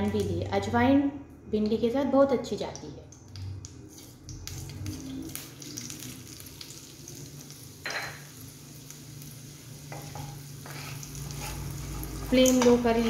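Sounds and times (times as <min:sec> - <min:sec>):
seeds sizzling in hot oil: 0:03.2 - 0:13.0
wooden spatula stirring: 0:10.6 - 0:12.8.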